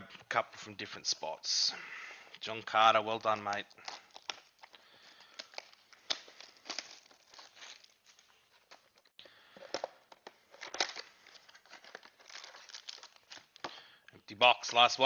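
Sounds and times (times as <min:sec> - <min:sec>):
plastic wrapping tearing and crinkling: 0:02.6 - 0:14.0.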